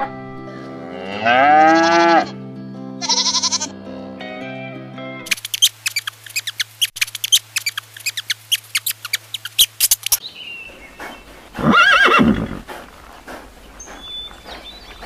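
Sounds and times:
rats squeaking: 5.3s - 10.2s
horse whinnying: 11.5s - 12.7s.

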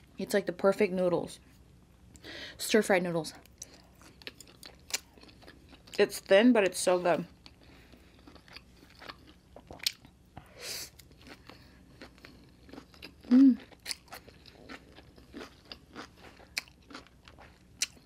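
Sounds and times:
person humming: 13.3s - 13.6s.

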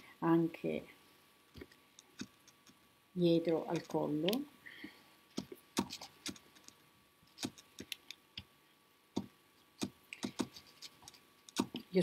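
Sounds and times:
hands braiding cord clicks and taps: 1.5s - 2.8s, 5.3s - 8.5s, 9.2s - 12.0s.

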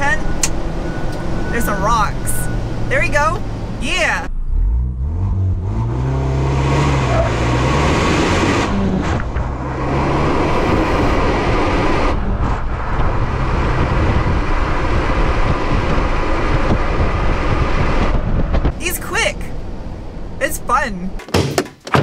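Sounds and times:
car engine accelerating: 0.0s - 20.4s
tyre and wind rush: 6.9s - 20.2s.

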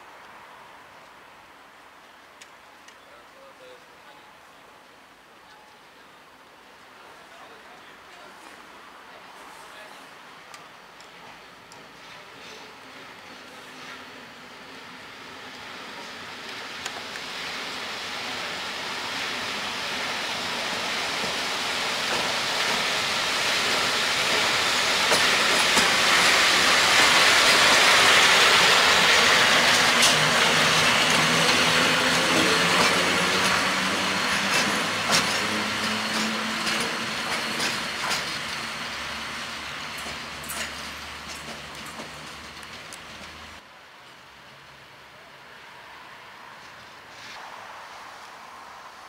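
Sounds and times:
electric locomotive passing: 5.4s - 43.6s
wheel clicks over rail joints: 32.4s - 38.7s, 39.9s - 43.4s.

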